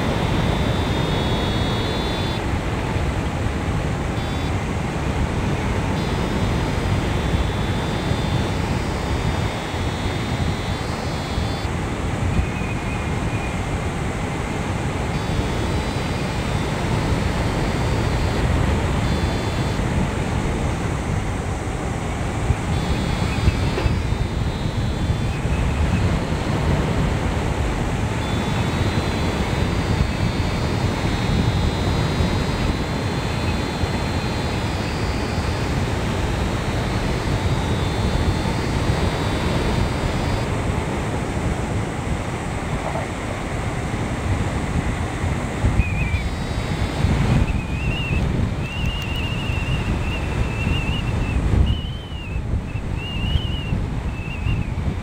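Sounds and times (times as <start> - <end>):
thin high electronic tones: 0.0 - 2.5, 4.1 - 4.7, 5.6 - 13.6, 15.0 - 19.9, 22.4 - 27.0, 27.9 - 40.7, 45.7 - 54.7
wind roar on microphone: 0.0 - 55.0.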